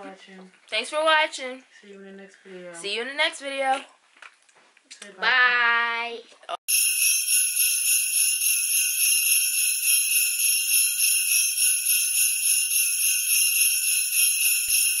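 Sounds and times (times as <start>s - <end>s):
sleigh bells jingling: 6.7s - 15.0s.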